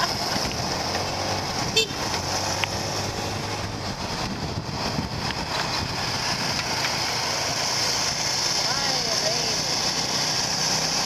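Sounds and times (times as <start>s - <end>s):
wind rush on microphone: 0.0s - 7.2s
low engine hum: 0.0s - 11.0s.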